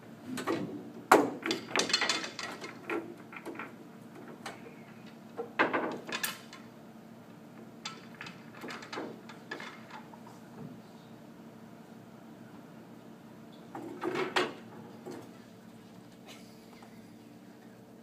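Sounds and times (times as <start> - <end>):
pool balls clacking: 0.0 - 6.8, 7.5 - 10.8, 13.7 - 15.4.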